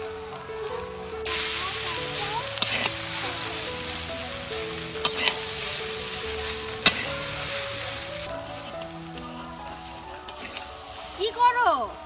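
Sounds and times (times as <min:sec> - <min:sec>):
noodles sizzling in a pan: 0:00.0 - 0:12.0.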